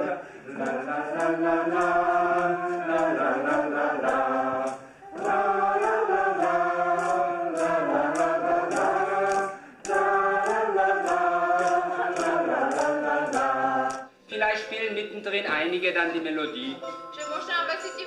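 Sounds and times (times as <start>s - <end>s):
wooden sticks tapping a beat: 0.0s - 14.1s
group singing in unison: 0.0s - 14.2s.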